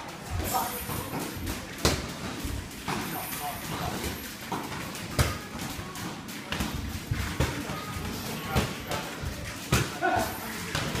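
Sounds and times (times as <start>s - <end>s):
gym background noise: 0.0s - 11.0s.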